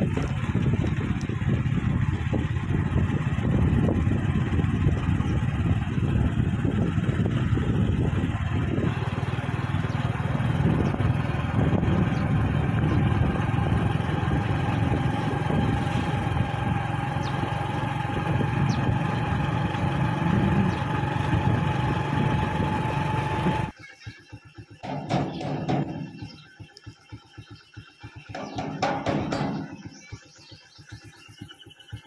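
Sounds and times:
motorcycle engine running: 0.0 - 32.0
road and wind noise: 0.0 - 32.0.

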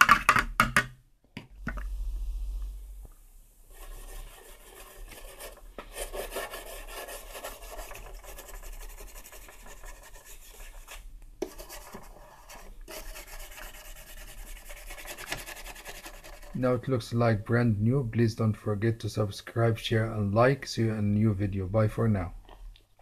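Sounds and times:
toothbrush scrubbing plastic: 3.7 - 16.6.

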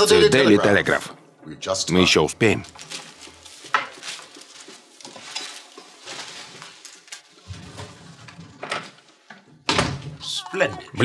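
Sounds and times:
newspapers rustling: 2.3 - 9.3.

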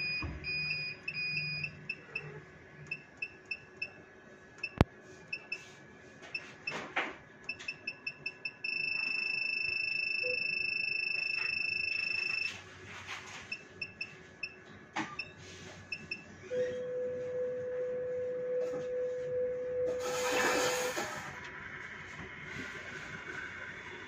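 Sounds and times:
keypad beeps: 0.0 - 2.3, 2.9 - 4.0, 4.6 - 5.7, 6.3 - 6.8, 7.5 - 12.6, 13.4 - 16.3.

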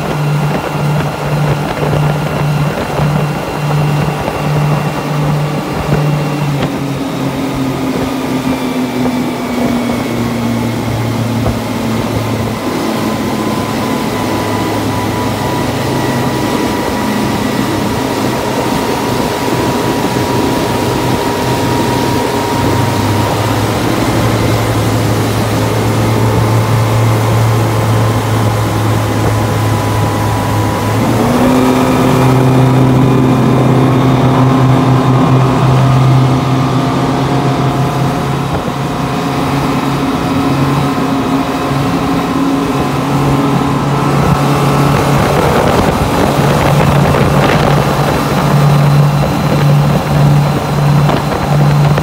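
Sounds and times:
outboard motors running: 0.0 - 52.0
rush of boat wake: 0.0 - 52.0.

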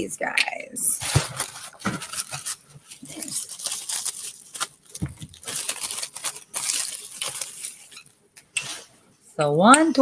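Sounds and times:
packaging rustling and crinkling: 1.0 - 8.2.

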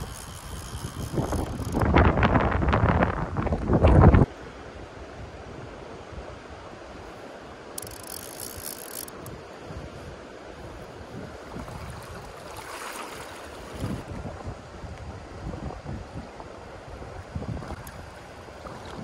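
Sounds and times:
wind buffeting microphone: 0.0 - 4.3, 8.4 - 19.0
river water rushing: 9.1 - 14.1.

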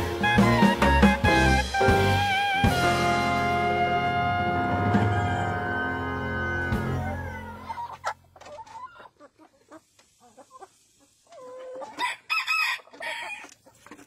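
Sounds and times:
chickens clucking: 4.8 - 14.0.

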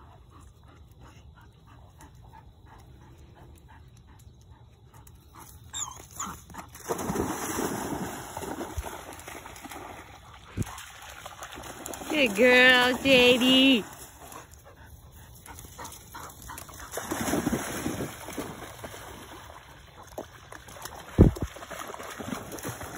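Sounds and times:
dog panting: 0.0 - 5.5, 14.3 - 16.9
dog splashing into water: 6.6 - 12.1, 16.7 - 22.9.

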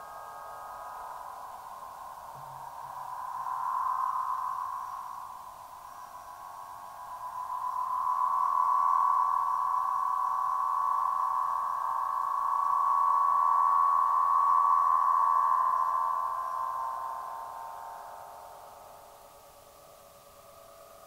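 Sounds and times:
wind harp ringing drone: 0.0 - 19.4.

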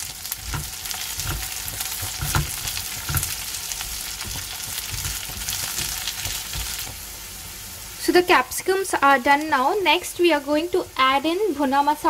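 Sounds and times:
vegetables sizzling in oil: 0.0 - 12.0
spatula scraping and tapping pan: 0.3 - 7.0.

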